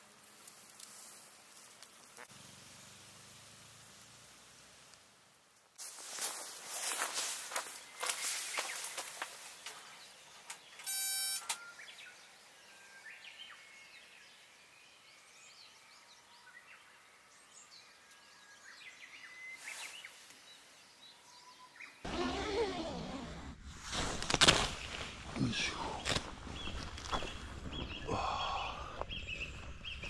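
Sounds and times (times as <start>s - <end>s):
birds chirping faintly: 5.8s - 23.0s, 23.9s - 30.0s.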